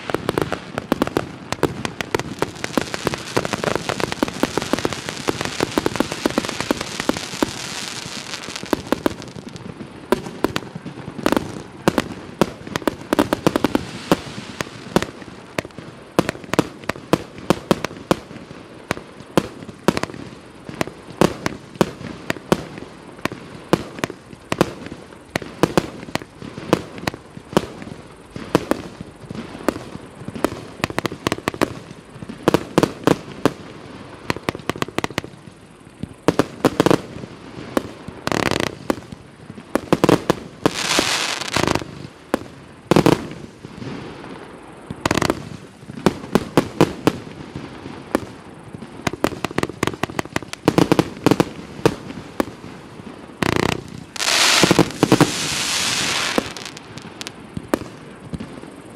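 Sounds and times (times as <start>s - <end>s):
firework hiss and crackle: 0.0s - 58.9s
firework launch reports: 53.6s - 58.4s.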